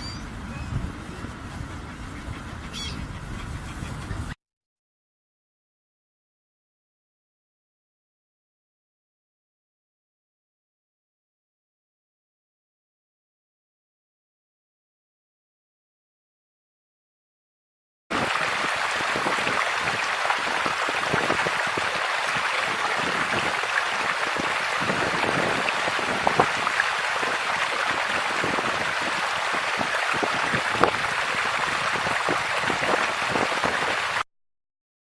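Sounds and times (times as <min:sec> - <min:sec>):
running water rushing: 0:18.1 - 0:34.2.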